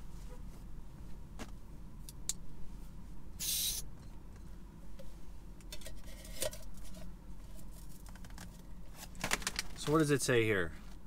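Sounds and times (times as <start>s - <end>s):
gas hissing rush: 3.4s - 3.8s.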